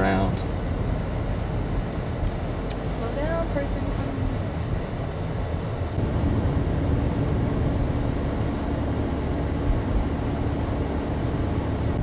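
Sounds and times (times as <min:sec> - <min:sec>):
vehicle engine and road rumble: 0:00.0 - 0:12.0.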